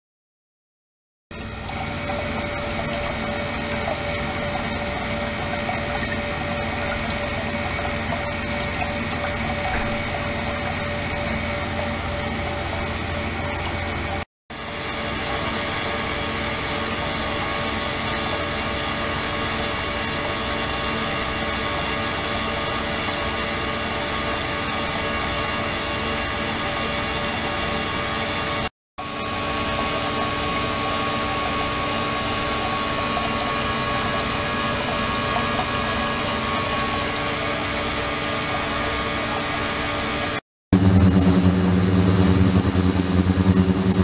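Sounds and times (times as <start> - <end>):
steady whining tones: 29.7 - 44.0
ultrasonic cleaner hum and hiss: 40.8 - 44.0.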